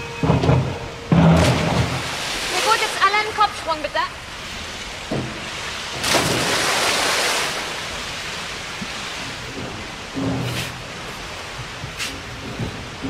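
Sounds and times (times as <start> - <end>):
steady water noise: 0.0 - 13.0
swimmer diving splash: 0.9 - 8.7.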